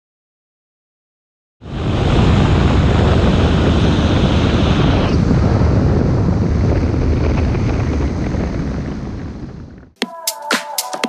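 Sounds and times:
wind on microphone: 1.6s - 10.0s.

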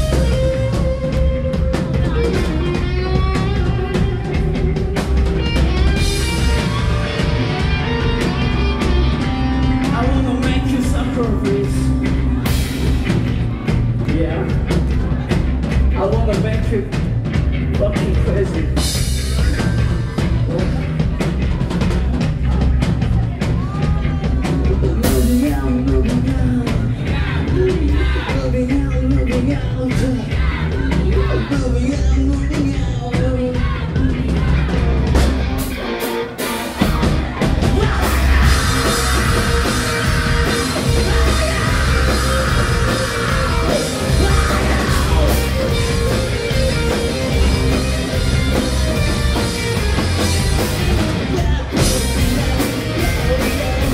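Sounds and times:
live rock band playing: 0.0s - 53.9s
man singing: 9.8s - 12.2s, 23.6s - 34.5s, 37.6s - 46.6s, 51.2s - 53.9s.

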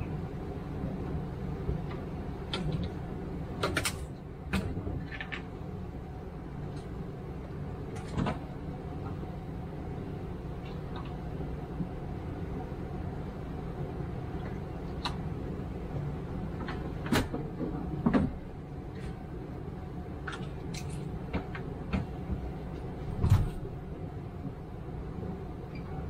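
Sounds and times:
steady low hum: 0.0s - 26.0s
knocks and clicks of laundry handling: 1.8s - 5.5s, 7.9s - 9.2s, 16.5s - 19.3s, 20.2s - 23.8s.

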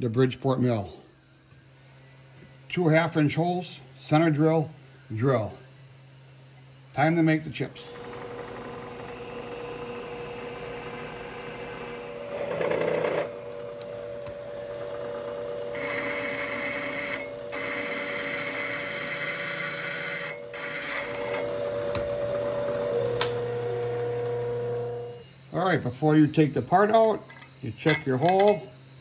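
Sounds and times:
milling machine spindle whine: 7.6s - 29.0s
drill cutting into metal: 7.8s - 25.2s.

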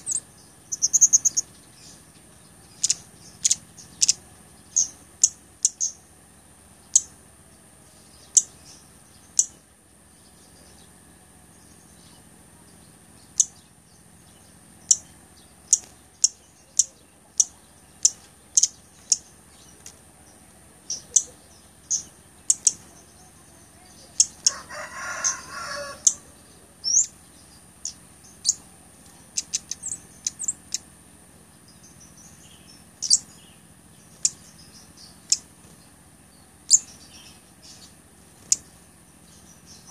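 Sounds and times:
bird high-pitched chips: 0.0s - 2.0s.

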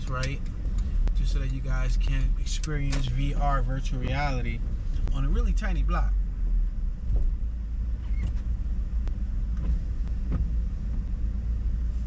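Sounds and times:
car engine and road rumble: 0.0s - 12.0s
light ticks: 0.1s - 1.7s.

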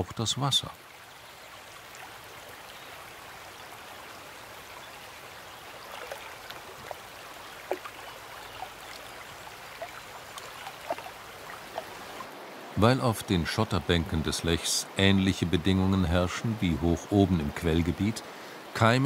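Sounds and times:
river water rushing over gravel: 0.0s - 19.0s
water plinks and gurgles: 4.5s - 12.3s.

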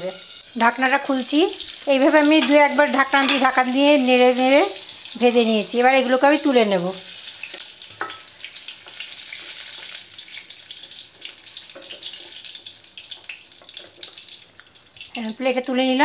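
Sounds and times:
vegetables sizzling in hot oil: 0.0s - 16.0s
spatula knocking and scraping pan: 2.2s - 3.7s, 7.5s - 9.0s, 11.7s - 12.4s.

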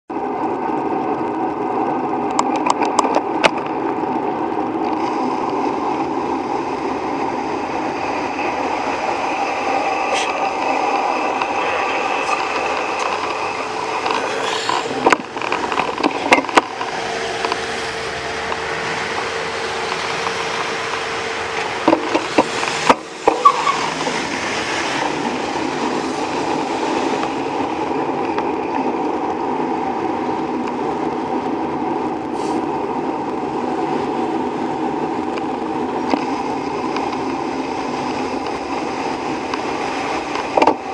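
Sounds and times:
bicycle road and wind noise: 0.1s - 40.9s
car engines: 0.1s - 40.9s.

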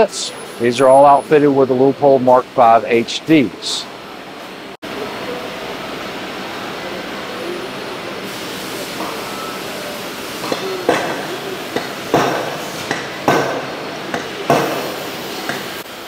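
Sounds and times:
steady background hum: 0.0s - 16.0s
hammer striking metal: 10.4s - 15.8s.

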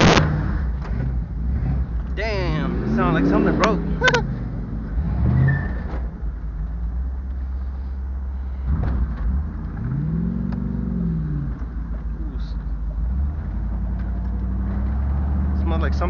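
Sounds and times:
car engine rumbling: 0.0s - 16.0s.

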